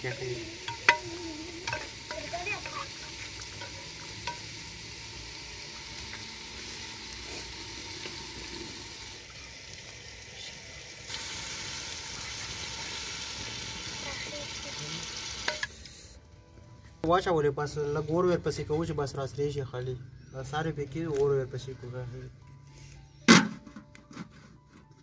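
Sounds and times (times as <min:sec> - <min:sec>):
metal spoon scraping pot: 0:00.0 - 0:04.6
food sizzling in pot: 0:00.0 - 0:16.2.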